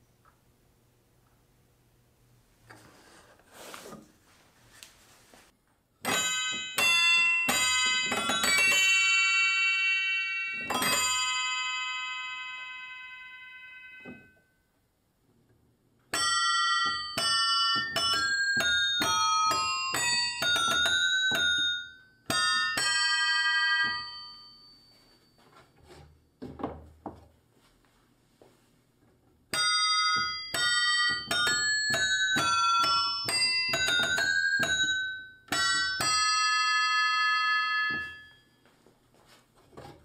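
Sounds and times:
keyboard-played metal bells ringing: 6.0s - 14.4s, 16.1s - 25.5s, 29.6s - 38.6s.

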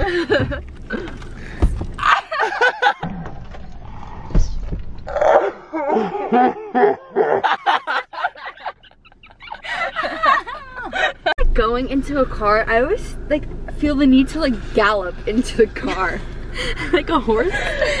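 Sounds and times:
young women laughing and shrieking: 2.0s - 3.0s, 5.7s - 11.4s.

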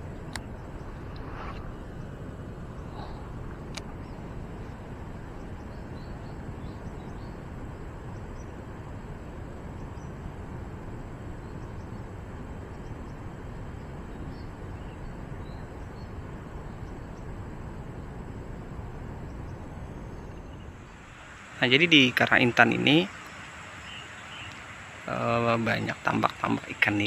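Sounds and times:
steady rushing outdoor noise: 0.0s - 27.0s
faint bird chirps: 0.2s - 10.5s, 11.2s - 18.2s, 18.9s - 27.0s.

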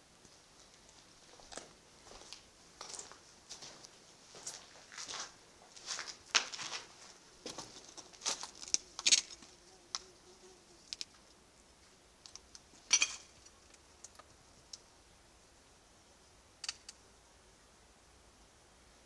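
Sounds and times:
sharp clicks and crackles: 12.2s - 14.9s, 16.6s - 17.0s.

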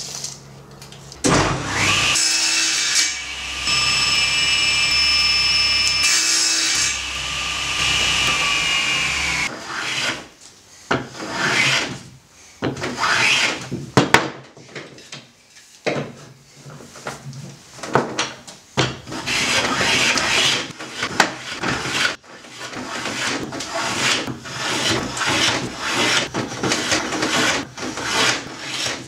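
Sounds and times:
table saw cutting wood: 1.2s - 10.2s, 19.1s - 29.0s
hand tool scraping wood: 19.1s - 29.0s.

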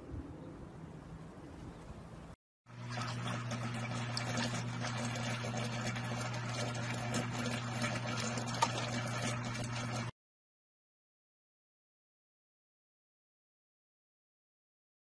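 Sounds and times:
aquarium pump humming: 2.7s - 10.2s.

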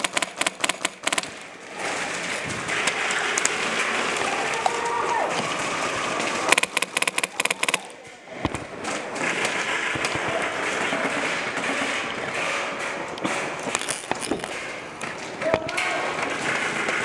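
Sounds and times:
airsoft rifle full-auto bursts: 0.0s - 1.4s, 6.5s - 7.9s
background hubbub: 1.3s - 17.0s.

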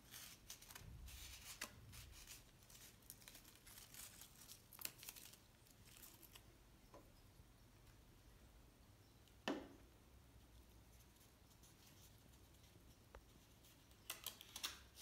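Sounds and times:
crepe paper rustling and tearing: 0.0s - 6.4s, 13.4s - 15.0s.

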